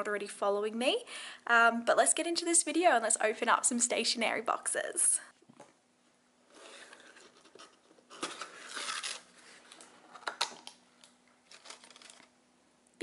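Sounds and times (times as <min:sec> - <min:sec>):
cardboard scraping and rustling: 0:06.5 - 0:10.3.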